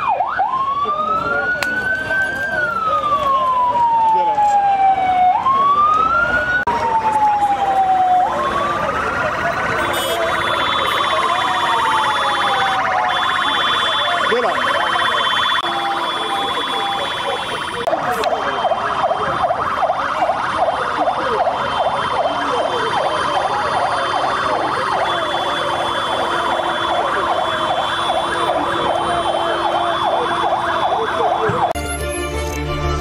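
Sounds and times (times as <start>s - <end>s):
siren warbling: 0.0s - 31.8s
theme music: 31.8s - 33.0s.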